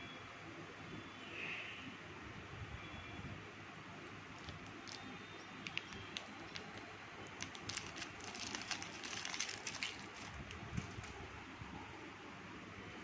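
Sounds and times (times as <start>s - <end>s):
wrapper crinkling: 4.3s - 11.2s.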